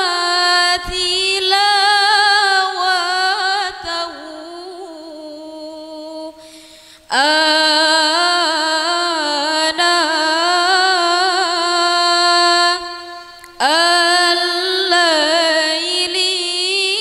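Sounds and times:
woman chanting melodically: 0.0 - 17.0
breath: 6.4 - 7.1.

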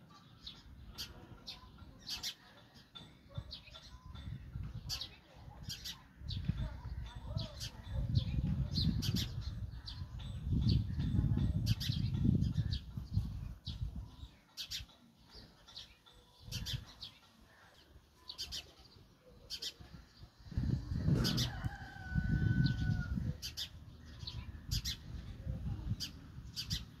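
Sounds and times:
sparrows chirping: 0.0 - 27.0.

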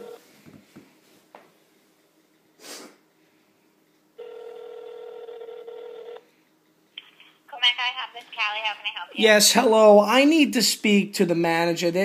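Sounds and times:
telephone ringback tone: 0.0 - 0.2, 4.2 - 6.3
short hiss: 2.6 - 3.0.

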